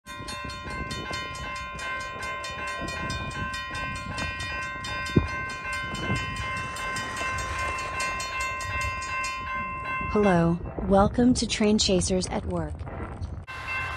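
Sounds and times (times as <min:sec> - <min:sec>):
crossing bell ringing: 0:00.1 - 0:10.6, 0:13.5 - 0:13.9.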